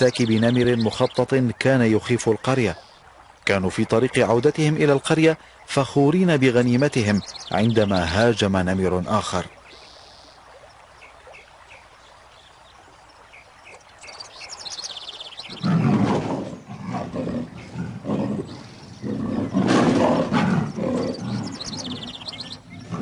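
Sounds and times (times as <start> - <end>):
birds chirping faintly: 0.0 - 23.0
tiger snarling and roaring: 15.5 - 23.0.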